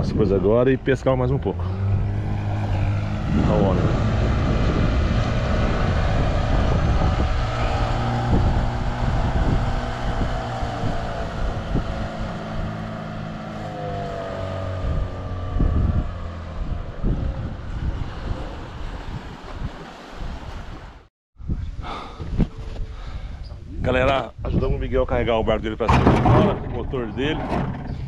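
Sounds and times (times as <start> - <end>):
outboard motor drone: 0.0 - 21.1
wind buffeting microphone: 0.0 - 28.0.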